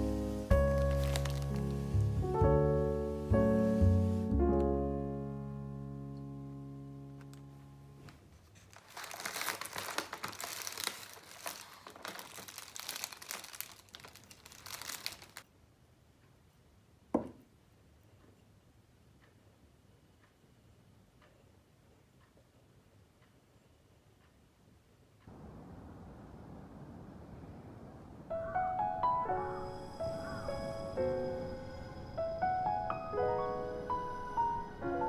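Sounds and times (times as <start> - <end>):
piano music: 0.0 - 8.1, 28.0 - 35.0
paper and cellophane crinkling: 0.6 - 2.2, 8.1 - 15.4.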